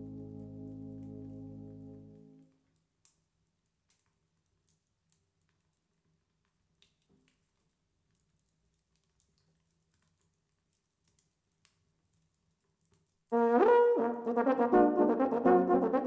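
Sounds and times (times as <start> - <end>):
euphonium quartet playing chords: 0.0 - 2.3, 13.5 - 16.0
faint clicks: 2.4 - 13.3.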